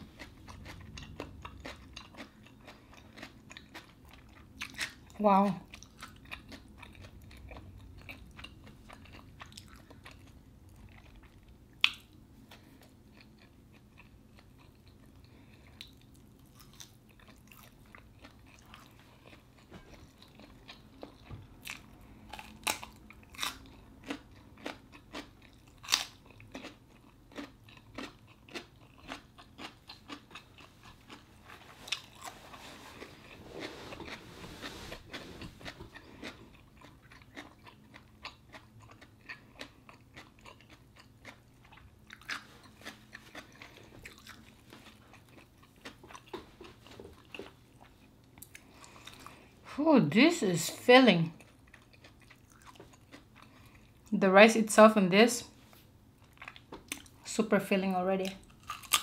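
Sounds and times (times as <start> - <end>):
mouth chewing: 0.0 - 49.5, 51.4 - 54.1, 58.2 - 59.0
crunching cucumber bites: 20.4 - 31.2, 58.2 - 59.0.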